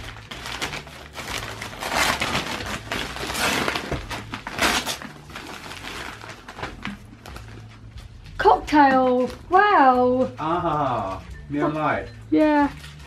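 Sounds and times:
wrapping paper tearing: 0:00.0 - 0:07.7
paper crinkling: 0:00.0 - 0:08.2, 0:12.6 - 0:13.0.

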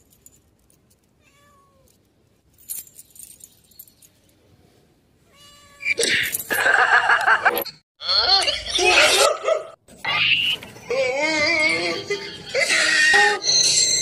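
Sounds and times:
cat meowing: 0:01.2 - 0:01.9, 0:05.3 - 0:06.0.

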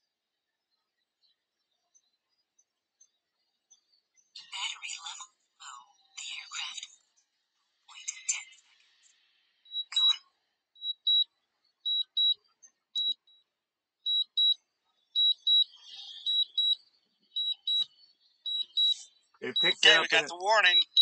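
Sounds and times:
high-pitched warning beeps: 0:10.8 - 0:11.3, 0:11.9 - 0:12.4, 0:13.0 - 0:13.2, 0:14.1 - 0:14.6, 0:15.2 - 0:16.8, 0:17.4 - 0:17.9, 0:18.5 - 0:21.0.

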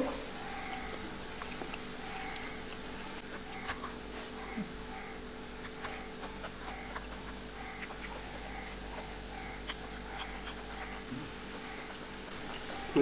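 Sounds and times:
insects chirring: 0:00.0 - 0:13.0
clicks from eating: 0:05.6 - 0:11.1.

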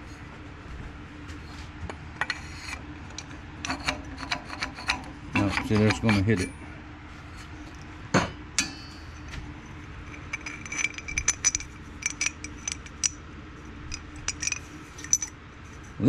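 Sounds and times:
faint steady hum: 0:00.0 - 0:16.0
aluminum tubes clinking together: 0:10.1 - 0:13.2, 0:13.9 - 0:15.4.

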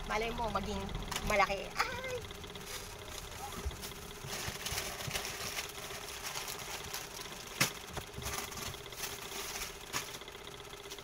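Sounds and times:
steady low hum: 0:00.0 - 0:11.0
rustling of packaged goods: 0:02.5 - 0:10.3.

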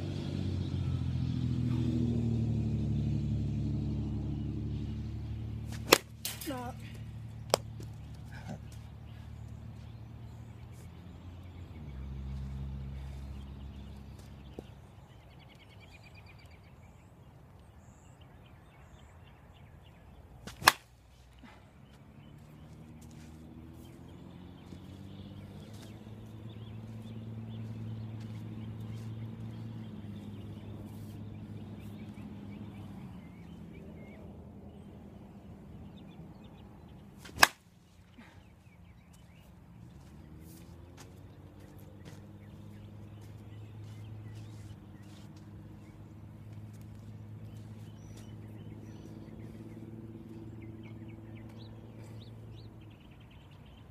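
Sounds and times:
bat cracking softball: 0:05.7 - 0:08.0, 0:20.4 - 0:21.0, 0:37.2 - 0:37.7.

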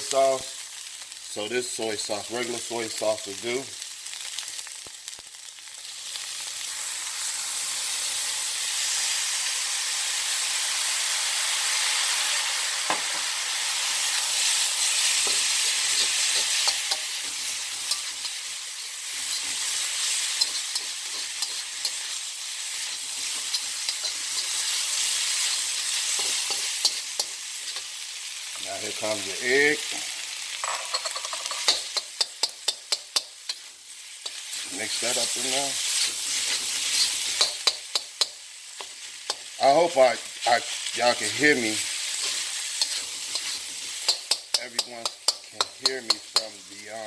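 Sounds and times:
rice sizzling in a wok: 0:00.0 - 0:47.0
metal spatula scraping wok: 0:14.4 - 0:28.0, 0:30.6 - 0:39.6, 0:40.7 - 0:46.6.

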